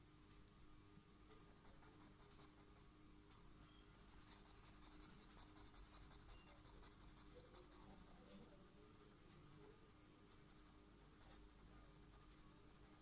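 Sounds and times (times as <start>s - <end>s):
felt-tip marker scratching on paper: 1.6s - 2.8s, 4.0s - 8.6s, 10.4s - 13.0s.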